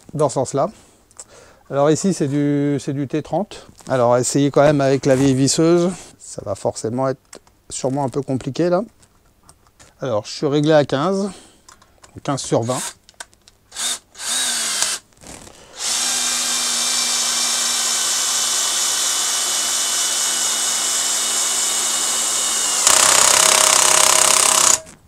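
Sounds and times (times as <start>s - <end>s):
cordless drill driving screw into wood: 13.7s - 15.0s, 15.8s - 25.0s.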